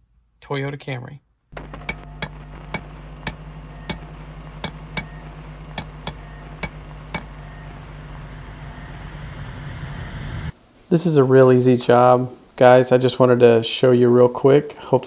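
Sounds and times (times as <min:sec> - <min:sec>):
steady low hum: 0:01.5 - 0:10.8
sharp ticks: 0:01.6 - 0:09.6.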